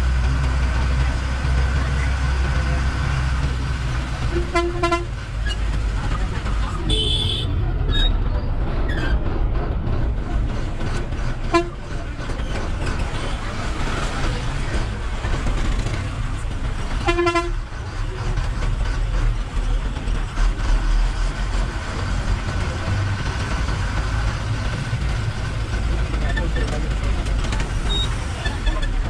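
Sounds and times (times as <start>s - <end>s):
bus diesel engine rumbling: 0.0s - 29.0s
road noise: 0.0s - 29.0s
vehicle horn: 4.3s - 5.1s, 6.9s - 7.6s, 11.5s - 11.8s, 17.0s - 17.6s.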